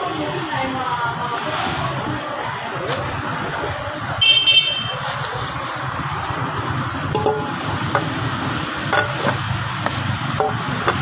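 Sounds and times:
metal bowl clicking: 0:07.1 - 0:08.2, 0:08.9 - 0:11.0.

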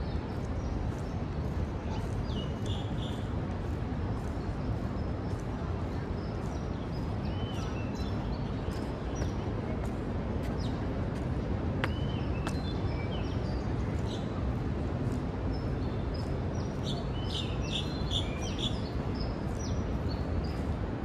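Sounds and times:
small birds chirping: 0:00.0 - 0:11.0, 0:11.8 - 0:14.4, 0:15.0 - 0:21.0
city background rumble: 0:00.0 - 0:21.0.

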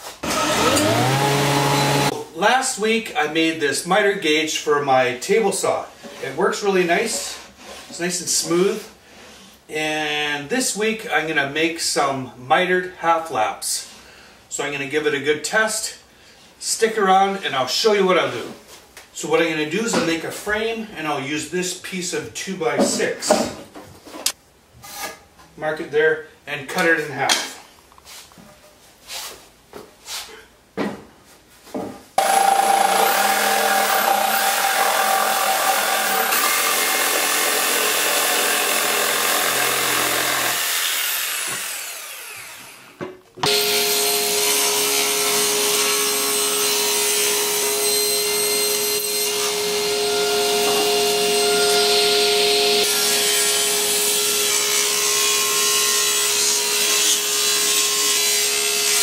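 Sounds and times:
table saw cutting wood: 0:00.0 - 0:02.2, 0:32.2 - 0:59.0.

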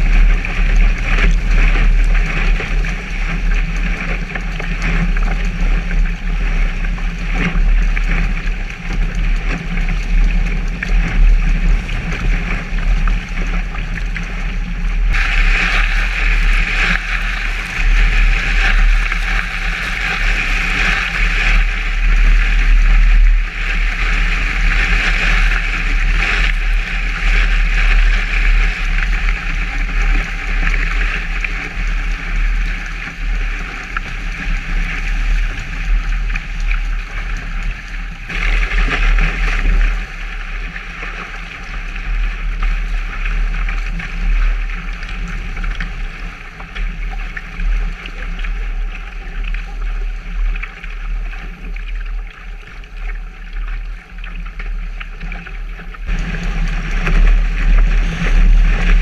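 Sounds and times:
water rushing along a hull: 0:00.0 - 0:59.0
wind buffeting microphone: 0:00.0 - 0:59.0
spray hissing off bow: 0:15.2 - 0:21.7.

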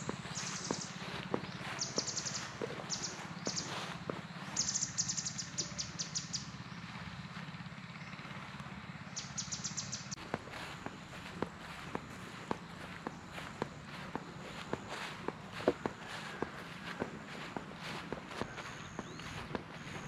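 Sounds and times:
soft footsteps: 0:00.0 - 0:04.8, 0:10.1 - 0:20.0
birds trilling: 0:00.0 - 0:20.0
low engine hum: 0:00.0 - 0:20.0.

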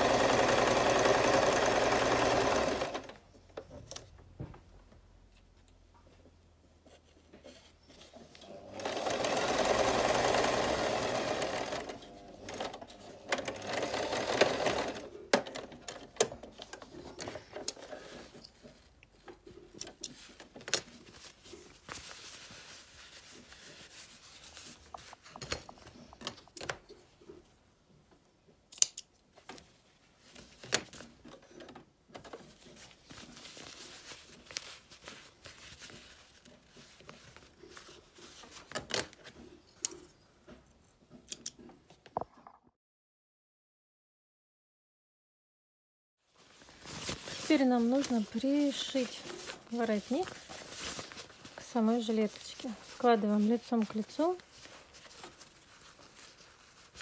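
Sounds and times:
sewing machine stitching: 0:00.0 - 0:03.2, 0:08.4 - 0:16.2.

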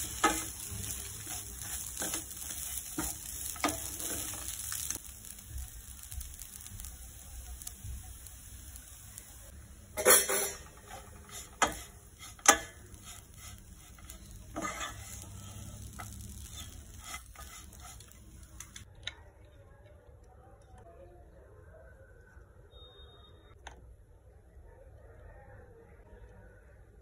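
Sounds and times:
wooden spatula scraping a pan: 0:00.0 - 0:06.7, 0:10.0 - 0:18.8.

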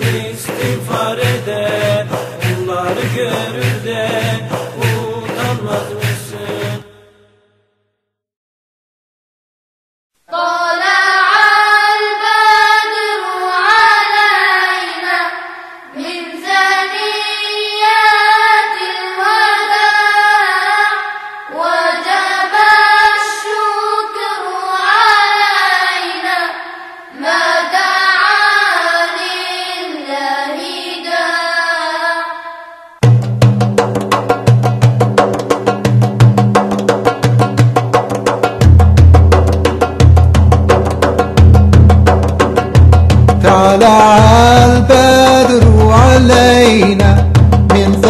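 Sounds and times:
drum beat: 0:00.0 - 0:06.9, 0:33.0 - 0:48.0.

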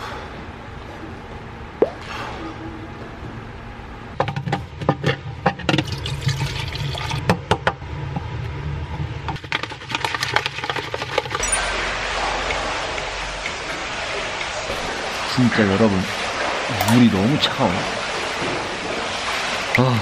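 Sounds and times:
water glugging and sloshing: 0:09.0 - 0:20.0.

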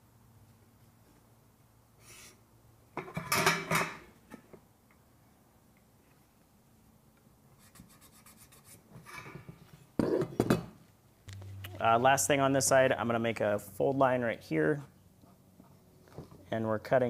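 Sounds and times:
marker scratching on metal: 0:07.6 - 0:09.2.

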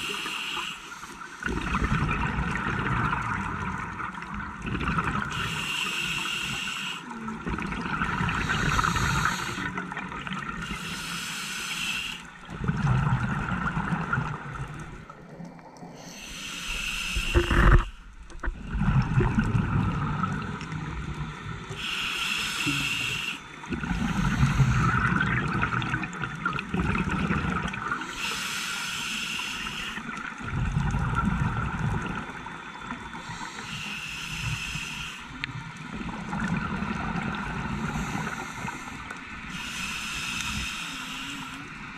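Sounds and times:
scuba regulator breathing underwater: 0:00.0 - 0:02.0, 0:04.9 - 0:14.0, 0:15.9 - 0:20.7, 0:21.7 - 0:25.8, 0:27.6 - 0:31.8, 0:33.1 - 0:35.5, 0:36.8 - 0:41.8.

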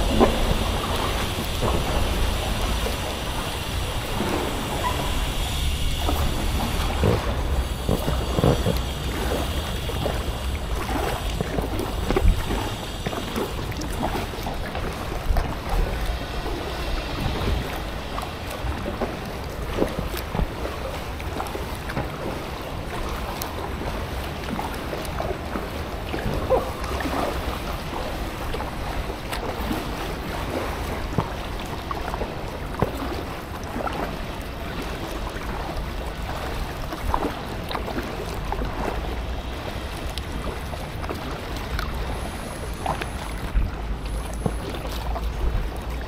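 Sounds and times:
steady low rumble: 0:00.0 - 0:24.8
paddle splashing in water: 0:00.0 - 0:46.0
water drips: 0:00.0 - 0:46.0.

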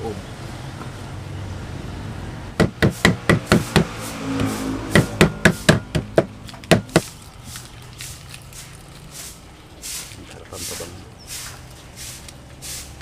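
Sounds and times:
knife chopping on wooden board: 0:02.6 - 0:07.1.

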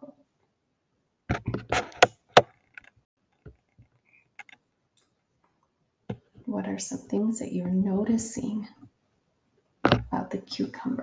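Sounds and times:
close-up clicks and knocks: 0:01.3 - 0:04.6, 0:09.8 - 0:10.1.

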